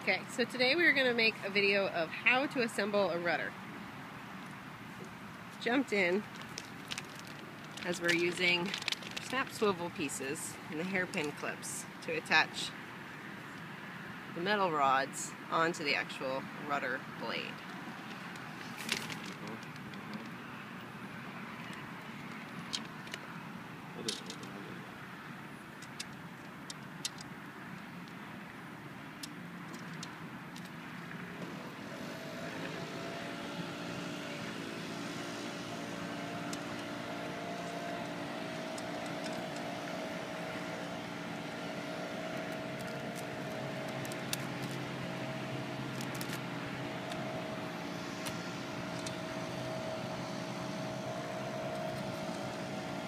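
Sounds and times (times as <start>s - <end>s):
engine drone: 30.9s - 53.0s.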